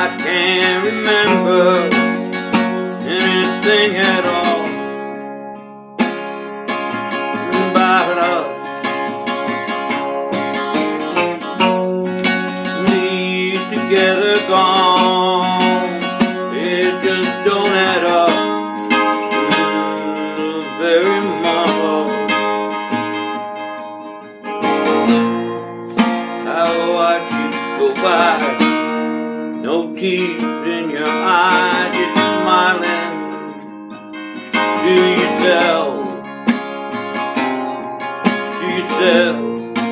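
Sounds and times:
acoustic guitar strummed: 0.0s - 39.9s.

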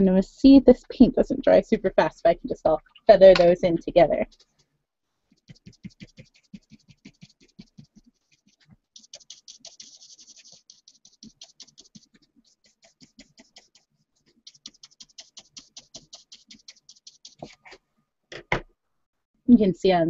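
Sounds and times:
paintbrush scrubbing on paper: 4.2s - 4.6s, 5.3s - 17.8s.

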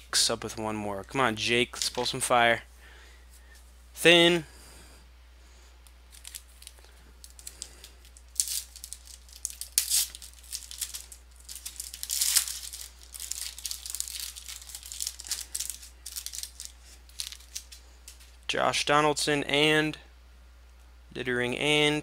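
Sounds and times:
foil wrapper crinkling and ripping: 6.1s - 18.4s.

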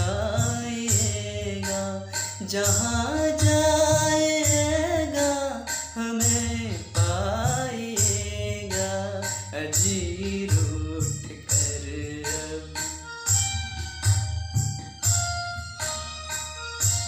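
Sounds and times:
man singing: 0.0s - 13.5s
karaoke backing track with drums: 0.0s - 17.0s.

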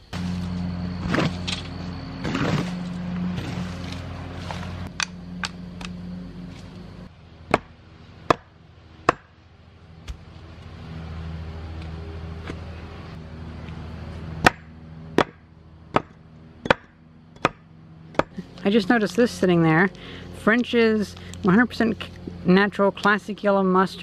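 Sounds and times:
low engine hum: 0.0s - 24.0s.

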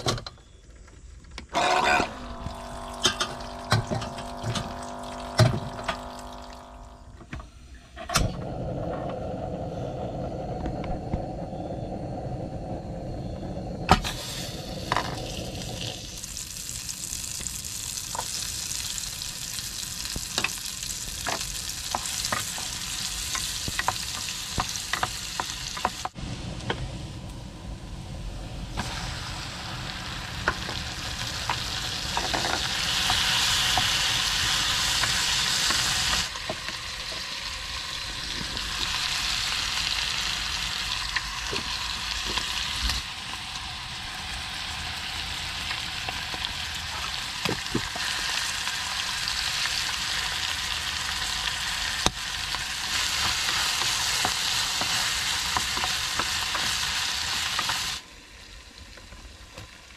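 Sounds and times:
shrimp sizzling in a pan: 14.1s - 26.2s, 28.8s - 58.5s.

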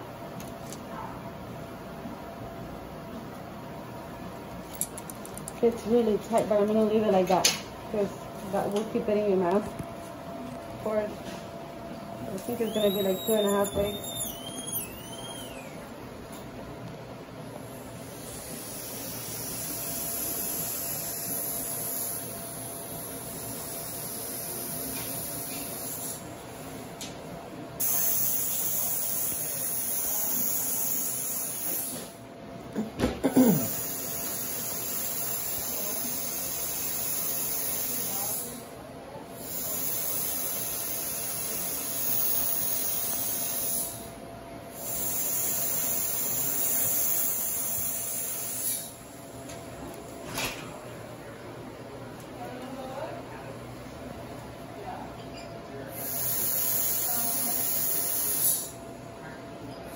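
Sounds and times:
dental handpiece high hiss: 12.4s - 15.8s, 18.1s - 22.3s, 23.0s - 26.2s, 27.8s - 32.1s, 33.6s - 38.6s, 39.4s - 44.1s, 44.7s - 49.0s, 56.0s - 58.8s.

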